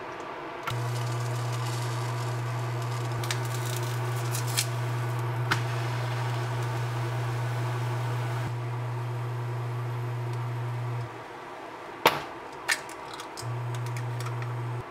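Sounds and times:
batter sizzling in frying pan: 0:00.7 - 0:10.1
steady low hum: 0:00.7 - 0:11.7, 0:13.4 - 0:14.9.

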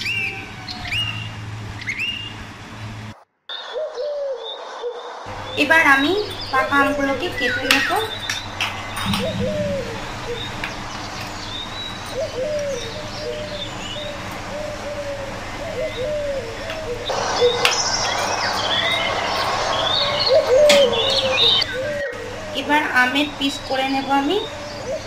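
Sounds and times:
small birds chirping: 0:03.5 - 0:25.0
steady background hiss: 0:05.3 - 0:25.0
doves cooing: 0:06.6 - 0:25.0.

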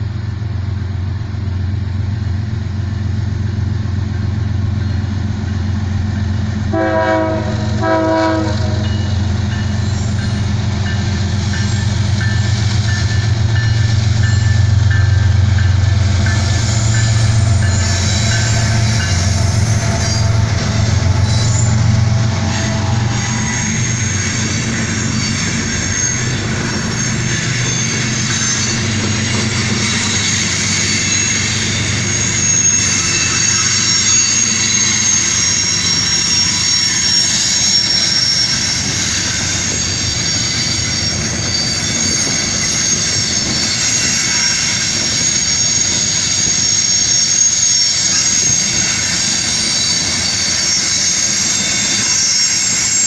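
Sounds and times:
locomotive engine rumble: 0:00.0 - 0:36.9
train wheels squealing on rails: 0:00.0 - 0:53.0
freight cars rolling on rails: 0:03.3 - 0:53.0.

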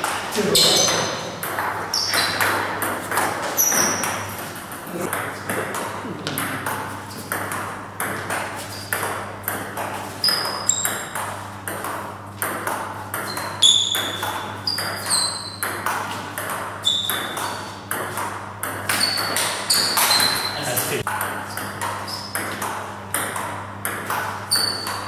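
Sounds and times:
steady low hum: 0:00.0 - 0:14.9.

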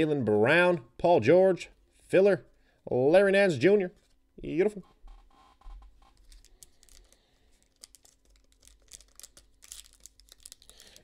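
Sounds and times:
foil wrapper crinkling: 0:06.1 - 0:11.0
foil wrapper tearing: 0:06.2 - 0:11.0.

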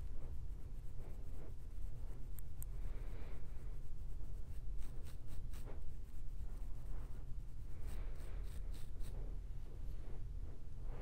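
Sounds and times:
fingernails scratching scalp: 0:00.0 - 0:02.8, 0:03.4 - 0:09.3.

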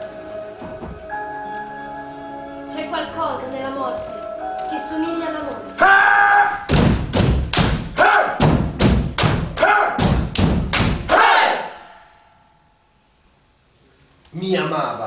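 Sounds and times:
ensemble thumping in unison: 0:06.7 - 0:11.1.

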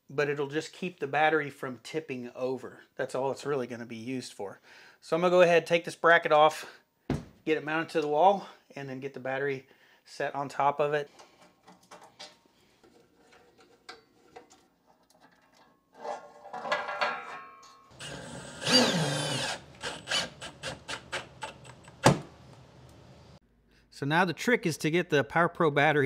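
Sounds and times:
cordless power driver whirring: 0:18.0 - 0:20.7.

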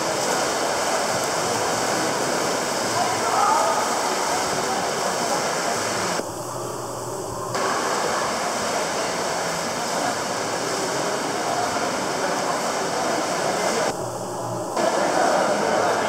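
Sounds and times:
swimmers splashing: 0:00.0 - 0:06.2, 0:07.6 - 0:13.9.

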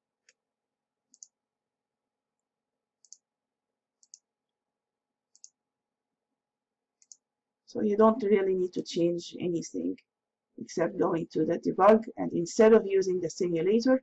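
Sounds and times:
computer mouse clicks: 0:01.1 - 0:01.4, 0:03.0 - 0:03.3, 0:04.0 - 0:04.3, 0:05.3 - 0:05.6, 0:07.0 - 0:07.3.

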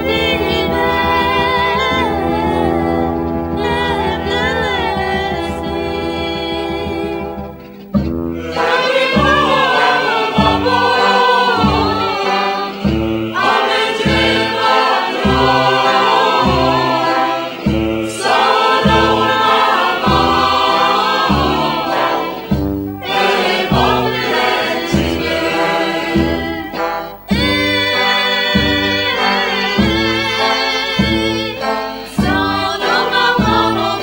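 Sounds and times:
pulsing bass line: 0:00.0 - 0:08.6
choir singing: 0:00.0 - 0:34.0.

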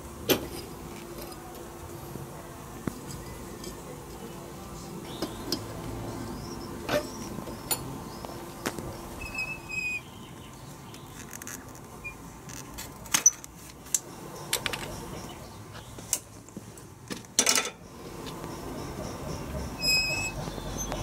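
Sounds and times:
short high squeak: 0:09.2 - 0:10.1, 0:19.8 - 0:21.0
metal tools clinking: 0:17.4 - 0:17.8.

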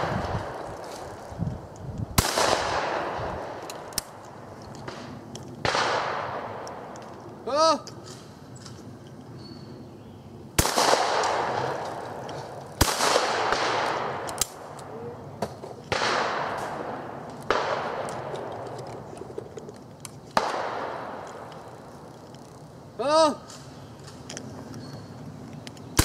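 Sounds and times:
shotgun shots echoing: 0:02.2 - 0:04.2, 0:04.9 - 0:06.9, 0:10.6 - 0:14.8, 0:15.9 - 0:18.6, 0:20.4 - 0:21.5.

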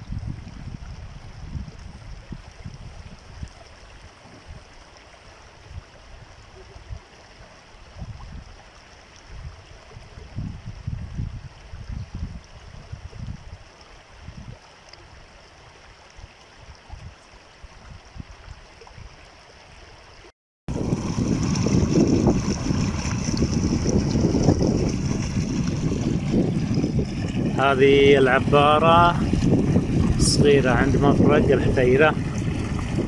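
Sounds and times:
wind rumbling on microphone: 0:00.0 - 0:04.8, 0:05.5 - 0:33.0
floodwater rushing: 0:20.7 - 0:33.0.

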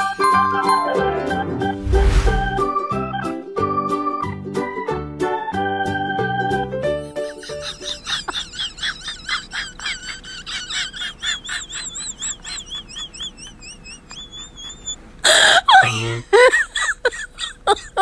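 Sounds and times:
squeaky laughter: 0:07.3 - 0:18.0.

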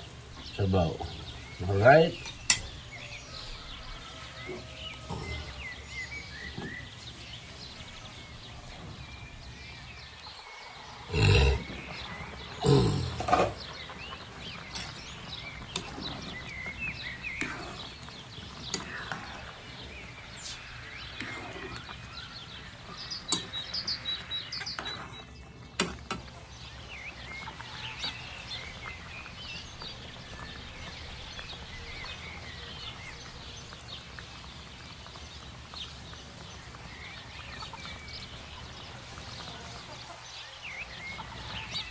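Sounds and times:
birds chirping: 0:00.0 - 0:41.9
animal calls: 0:10.2 - 0:25.1.

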